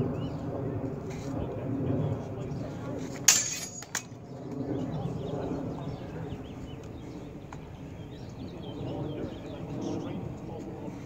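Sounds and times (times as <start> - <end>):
sword blades clashing: 3.3 - 4.0.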